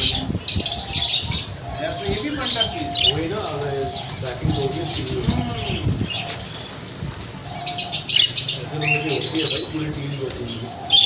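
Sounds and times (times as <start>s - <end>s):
budgerigars chirping: 0.0s - 11.0s.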